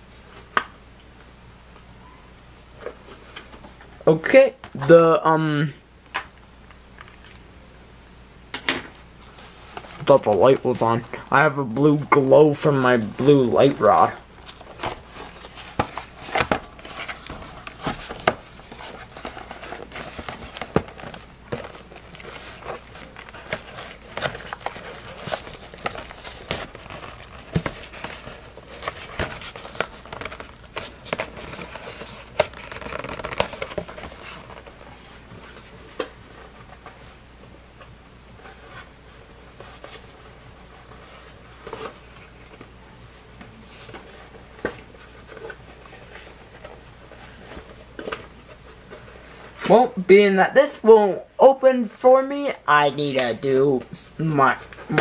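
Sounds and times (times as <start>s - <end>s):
cardboard box crinkling and rubbing: 11.8s - 37.2s.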